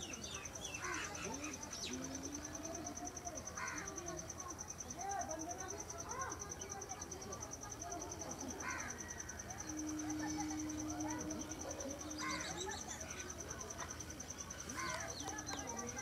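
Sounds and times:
insect chirping in fast pulse: 0.8 - 16.0
distant voice-like calls: 7.6 - 16.0
low steady tone: 9.0 - 14.7.

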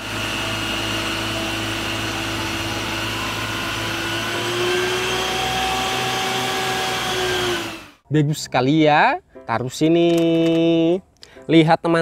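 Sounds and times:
truck engine and water pump: 0.0 - 8.0.

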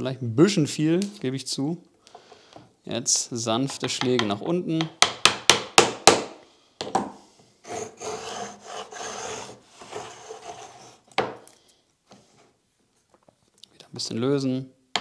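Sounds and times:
plane scraping wood: 7.6 - 11.1.

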